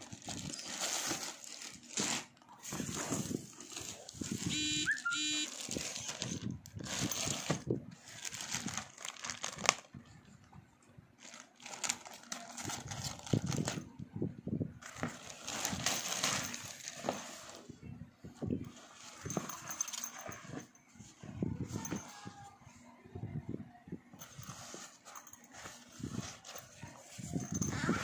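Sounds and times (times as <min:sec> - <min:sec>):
plastic sleeve crinkling: 0:00.0 - 0:10.0, 0:11.2 - 0:13.9, 0:14.8 - 0:17.6
squeaky tones: 0:04.5 - 0:05.6.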